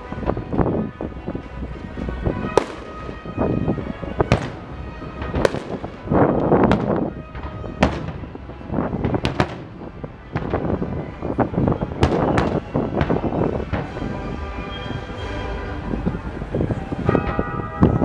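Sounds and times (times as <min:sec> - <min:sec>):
fireworks crackling: 0:00.0 - 0:15.4
fireworks bangs: 0:01.6 - 0:14.3.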